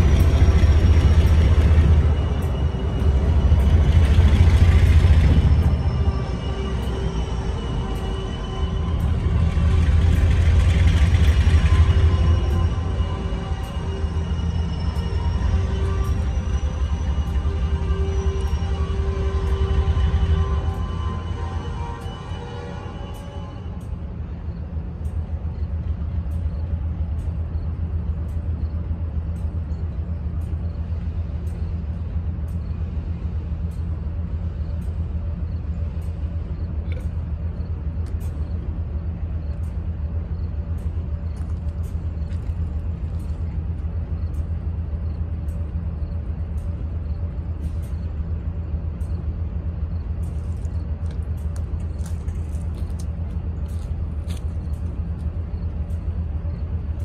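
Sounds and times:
diesel locomotive idling: 0.0s - 57.0s.

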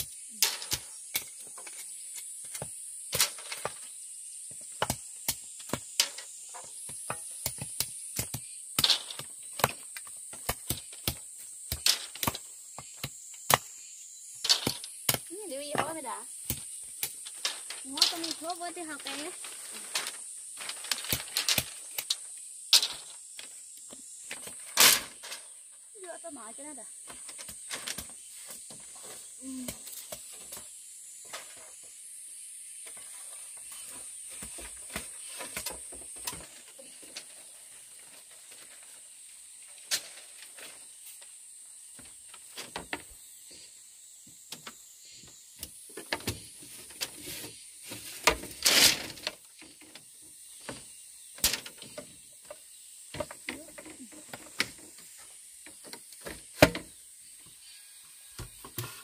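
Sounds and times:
steady high hiss: 0.0s - 59.0s
rustling scrape: 17.3s - 21.8s.

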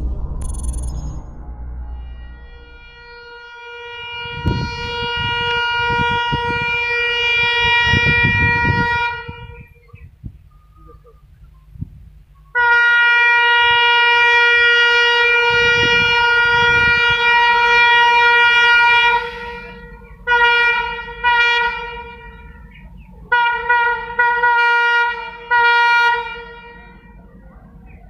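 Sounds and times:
low engine rumble: 0.0s - 28.0s
locomotive horn blasts: 1.8s - 9.8s, 12.5s - 22.7s, 23.3s - 27.3s.

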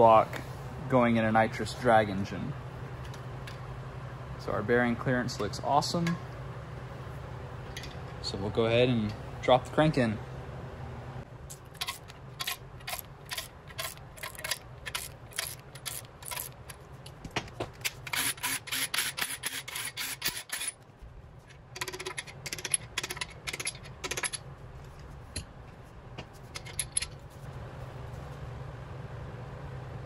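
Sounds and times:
steady low hum: 0.0s - 30.0s
metal caps clinking: 7.7s - 8.2s, 11.5s - 17.2s, 21.5s - 24.5s, 26.5s - 27.2s
socket ratchet clicking: 11.5s - 16.8s, 21.8s - 24.4s.

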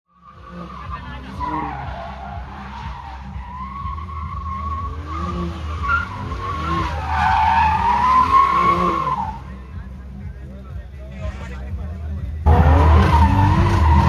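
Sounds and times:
car engine revving: 0.1s - 14.0s
tyres squealing: 0.2s - 9.5s, 12.5s - 14.0s.

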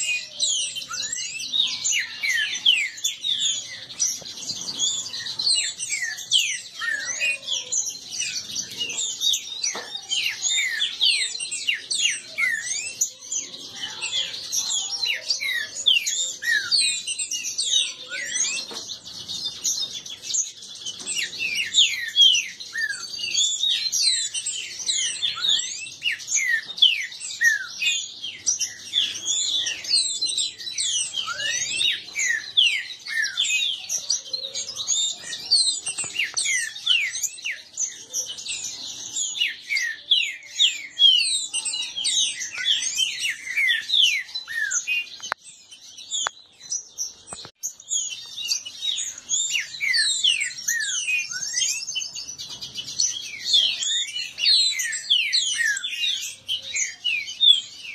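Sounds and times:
birds singing quick chirps and whistles: 0.0s - 57.9s.

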